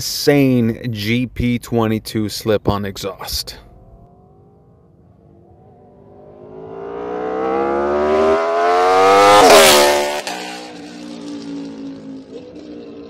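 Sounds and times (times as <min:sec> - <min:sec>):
motorcycle engine revving past: 0:03.7 - 0:13.0.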